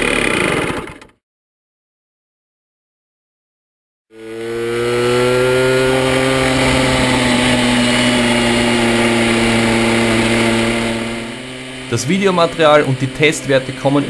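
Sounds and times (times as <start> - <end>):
moped engine running: 0.0 - 1.2, 4.1 - 14.0.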